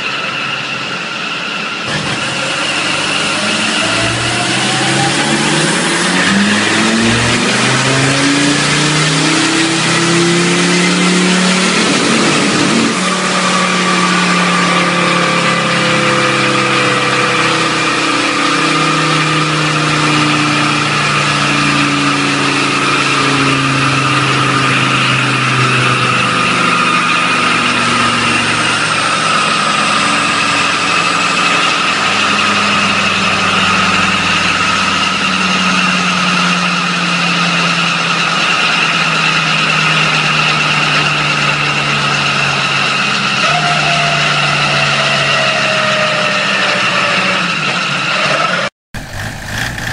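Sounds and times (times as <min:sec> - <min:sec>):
high whine: 0:00.0 - 0:38.4, 0:49.0 - 0:49.9
diesel engine under load: 0:00.0 - 0:49.9.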